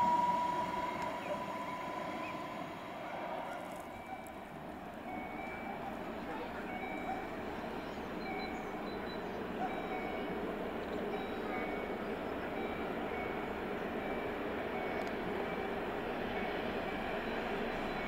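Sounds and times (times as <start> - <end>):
short high beep: 0.0 - 2.2
locomotive rumble and rail noise: 0.0 - 18.0.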